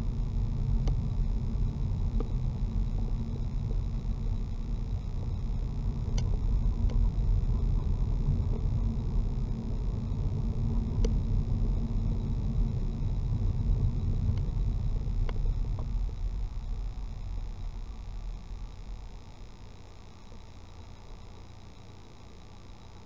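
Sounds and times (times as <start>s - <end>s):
car cabin engine and tyre rumble: 0.0s - 21.4s
faint clicks: 0.8s - 1.1s, 2.1s - 2.4s, 6.0s - 7.1s, 10.9s - 11.2s, 14.3s - 14.6s, 15.2s - 19.4s.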